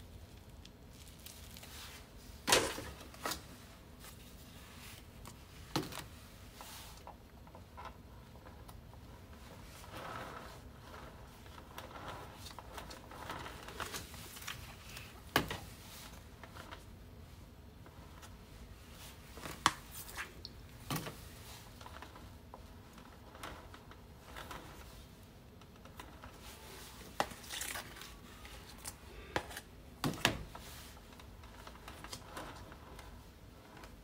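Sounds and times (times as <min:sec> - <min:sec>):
spatula scraping frosting: 0:09.4 - 0:14.2.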